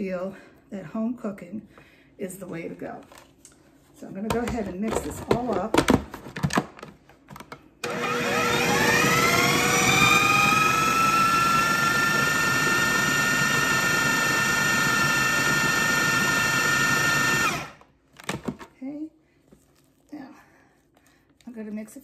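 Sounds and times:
food processor motor whining: 0:07.8 - 0:17.9.

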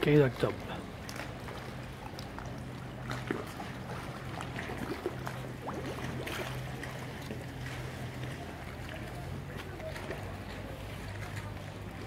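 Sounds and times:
water trickling and lapping: 0:00.0 - 0:12.0.

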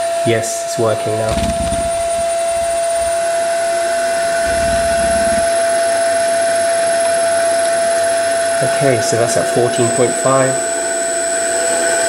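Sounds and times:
electric motor whine: 0:01.3 - 0:07.2.

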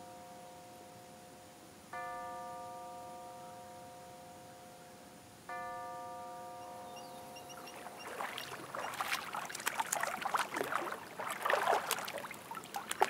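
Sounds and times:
child splashing water: 0:07.6 - 0:13.0.

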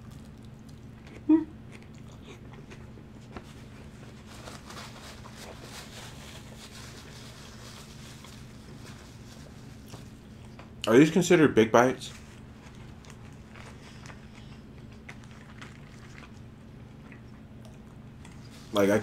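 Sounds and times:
person chewing food: 0:00.0 - 0:05.4, 0:07.9 - 0:10.8, 0:12.3 - 0:18.6
person humming: 0:01.2 - 0:01.5
paper napkin rustling: 0:03.2 - 0:10.3.

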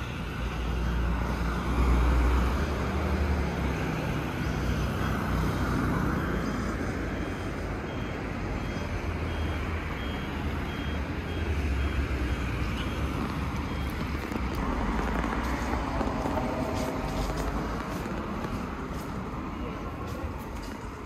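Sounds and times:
car engines rumbling: 0:00.0 - 0:21.0
tyres hissing on road: 0:14.5 - 0:21.0.

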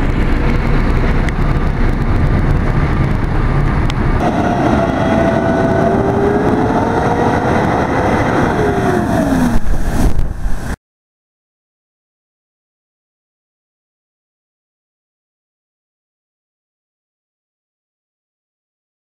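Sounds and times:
diesel engine running: 0:00.0 - 0:10.2
water spraying: 0:00.0 - 0:10.8.

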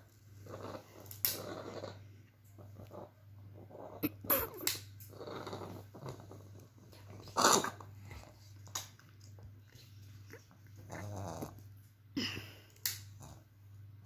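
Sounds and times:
puppy grumbling: 0:02.7 - 0:08.4, 0:10.2 - 0:11.6.

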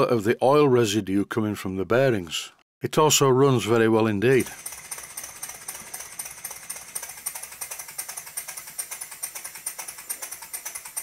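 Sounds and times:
light mechanical clatter: 0:04.4 - 0:11.0
model steam engine exhaust puffs: 0:04.4 - 0:11.0.

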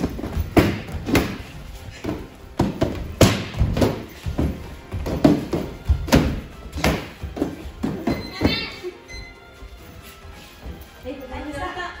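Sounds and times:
kicks thudding on padded shield: 0:00.0 - 0:08.7
background music: 0:00.0 - 0:12.0.

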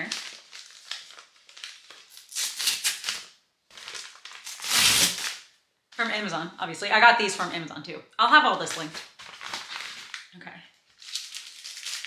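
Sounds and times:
paper mailer crinkling: 0:00.0 - 0:05.4, 0:08.8 - 0:10.3
paper ripping: 0:00.0 - 0:05.5, 0:08.7 - 0:10.3, 0:10.9 - 0:12.0.

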